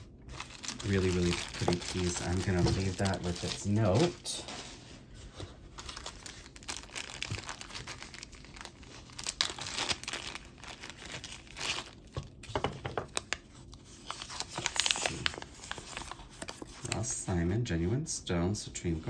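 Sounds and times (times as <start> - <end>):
plastic bag crinkling: 0.2 - 4.8, 5.6 - 17.2.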